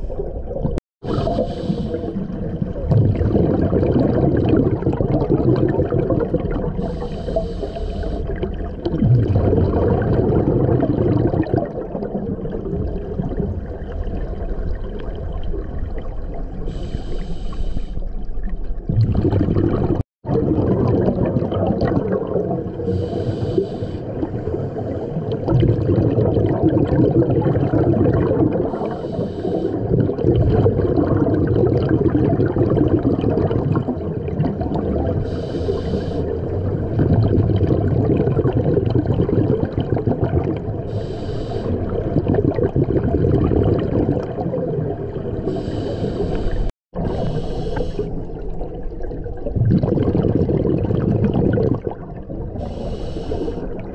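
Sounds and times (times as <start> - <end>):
exhaled bubbles rumbling: 0.0 - 17.2, 18.1 - 53.9
regulator hissing inhale: 1.2 - 2.2, 6.8 - 8.4, 16.7 - 18.1, 22.8 - 25.2, 28.7 - 29.8, 35.2 - 36.4, 40.9 - 41.9, 45.5 - 48.3, 52.6 - 53.7.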